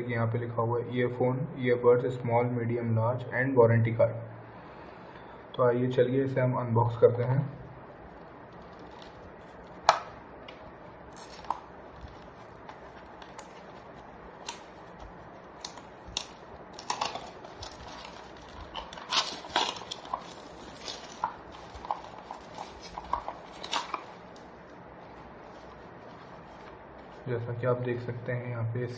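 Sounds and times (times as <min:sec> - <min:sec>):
plastic wrap crinkling and tearing: 0:07.6 - 0:27.3.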